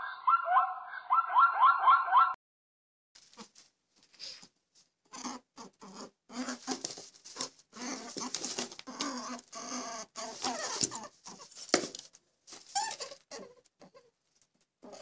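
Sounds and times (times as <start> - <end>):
rabbit squeaking: 5.1 - 11.9, 12.6 - 14.1.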